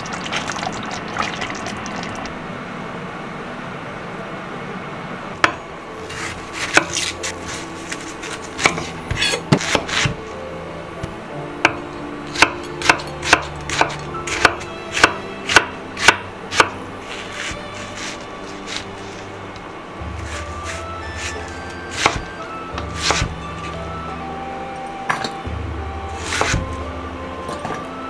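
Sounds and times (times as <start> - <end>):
knife chopping on wooden board: 5.4 - 7.2, 8.6 - 10.2, 12.4 - 16.8, 21.2 - 23.4, 26.2 - 26.8.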